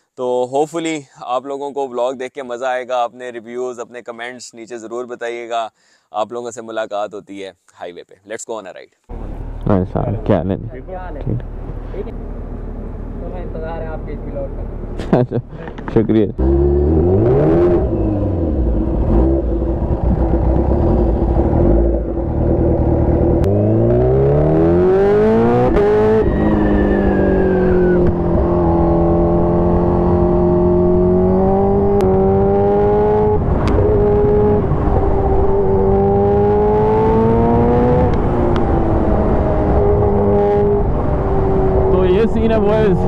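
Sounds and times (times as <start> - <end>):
motorcycle engine revving: 14.6 - 43.0.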